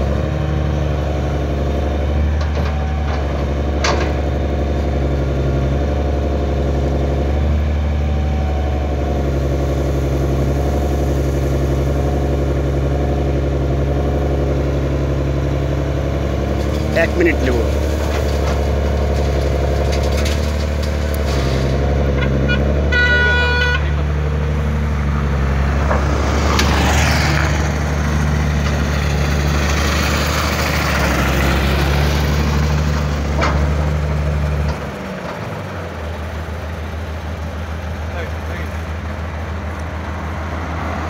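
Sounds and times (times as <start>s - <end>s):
diesel excavator engine: 0.0s - 41.0s
vehicle horn toot: 22.1s - 24.0s.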